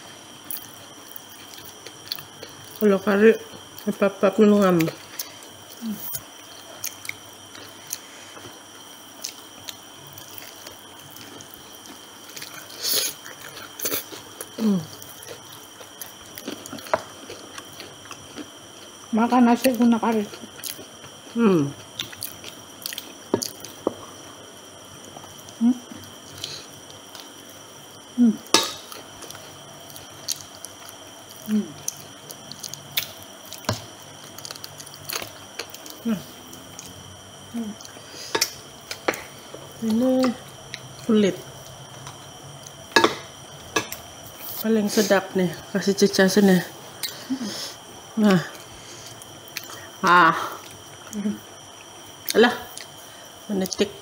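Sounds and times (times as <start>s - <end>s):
faint steady high hum: 0.0s - 54.0s
chewing with wet mouth clicks: 19.6s - 23.8s, 49.2s - 49.8s
crunchy food bites: 28.0s - 36.0s
sharp mouth clicks: 47.0s - 47.2s.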